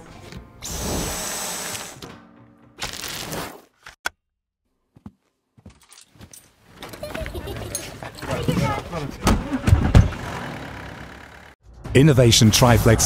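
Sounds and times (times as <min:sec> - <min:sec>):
handheld vacuum whining: 0:00.6 - 0:02.0.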